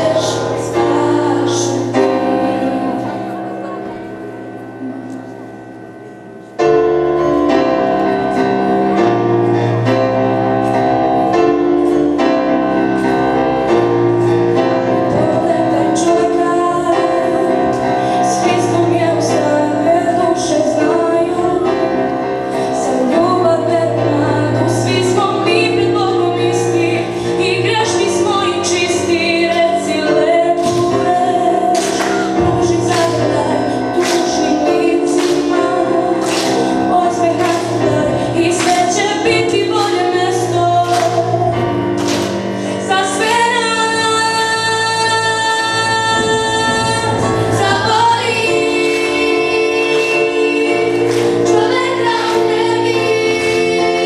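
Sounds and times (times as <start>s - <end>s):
woman singing: 0.0s - 4.1s, 14.9s - 54.0s
instrumental accompaniment: 0.0s - 54.0s.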